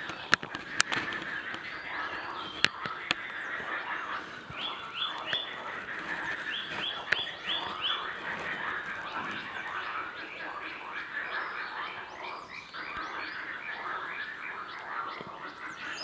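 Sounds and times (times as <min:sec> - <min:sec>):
sharp clicks: 0:00.0 - 0:01.7
frogs croaking chorus: 0:00.0 - 0:16.0.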